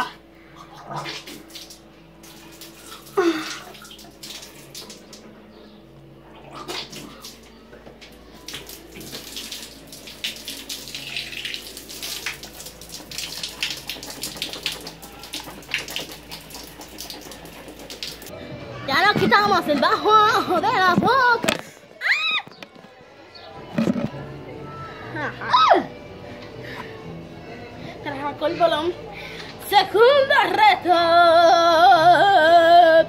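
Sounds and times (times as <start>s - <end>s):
tap water running into sink: 8.0s - 18.3s.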